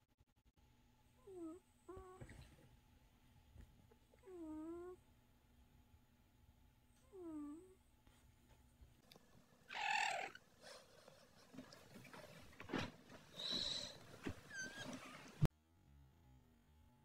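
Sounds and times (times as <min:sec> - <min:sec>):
cat harsh cry: 0:09.7 - 0:10.4.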